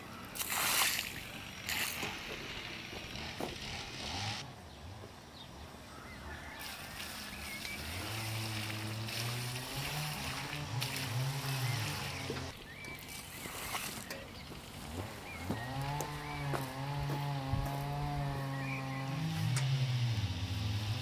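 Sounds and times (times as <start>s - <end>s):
water pouring and splashing: 0.2s - 2.8s, 6.6s - 14.8s.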